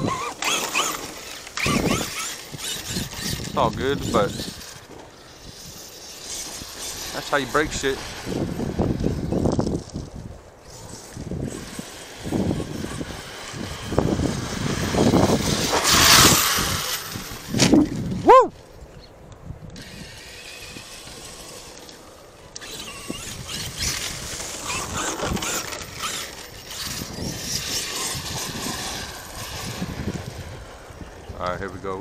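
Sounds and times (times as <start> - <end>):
electric motor whine: 0.0 - 10.1, 10.7 - 18.2, 19.7 - 31.3
rc truck driving noise: 0.0 - 32.0.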